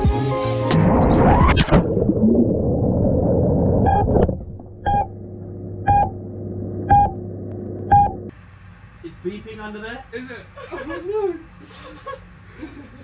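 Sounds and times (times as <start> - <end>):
muffled underwater rushing: 0.7 - 7.5
steady hum: 1.7 - 10.8
short electronic beeps: 3.8 - 4.2, 4.8 - 5.2, 5.9 - 6.2, 6.9 - 7.2, 7.9 - 8.3.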